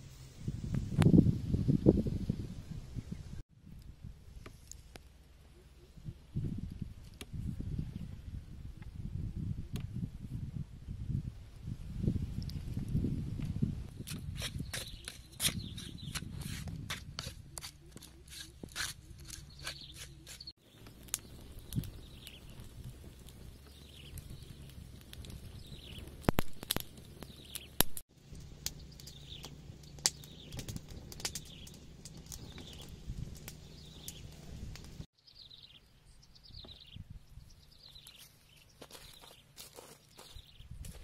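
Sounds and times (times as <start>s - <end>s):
bird chirping: 14.6s - 16.3s, 28.7s - 34.5s, 35.2s - 39.5s.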